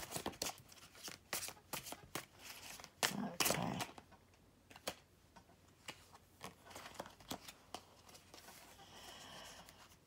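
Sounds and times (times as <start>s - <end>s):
cards being handled: 0.0s - 4.0s, 5.8s - 8.7s.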